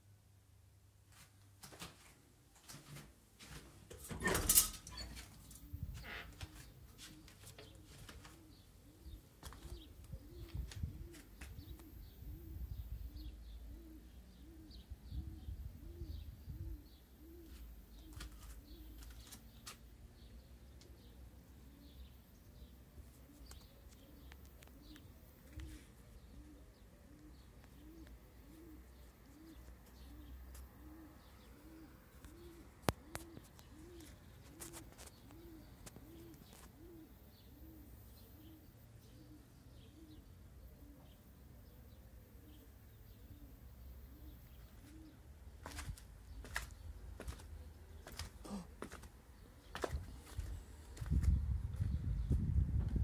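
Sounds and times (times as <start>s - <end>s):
dove cooing: 4.2s - 19.6s, 20.2s - 52.6s.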